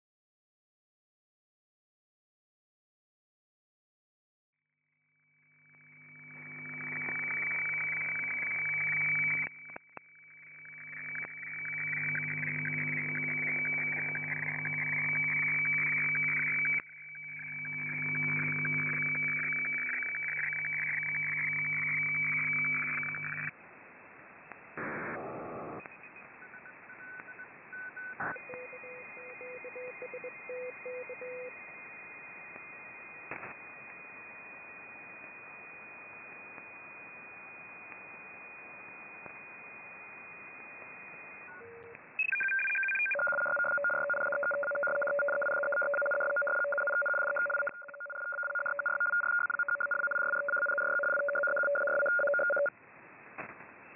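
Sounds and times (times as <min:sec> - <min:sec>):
two-tone fluttering data signal: 0:05.1 - 0:23.5, 0:25.7 - 0:52.7
radio data signal tones: 0:05.3 - 0:23.6, 0:24.4 - 0:52.7
radio hiss: 0:10.5 - 0:16.8, 0:17.4 - 0:26.4
short beeps: 0:41.5 - 0:52.7.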